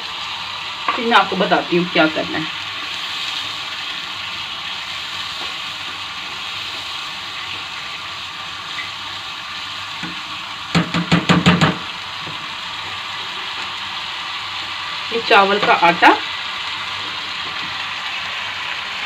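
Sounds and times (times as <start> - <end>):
garlic sizzling in a frying pan: 0.0 - 19.0
sharp knocks: 10.7 - 11.8.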